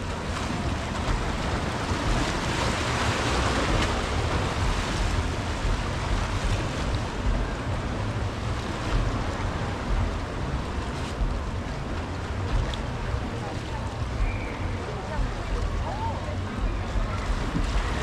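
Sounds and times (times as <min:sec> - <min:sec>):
ocean surf washing onto beach: 0:00.0 - 0:18.0
wind rumbling on microphone: 0:00.0 - 0:18.0.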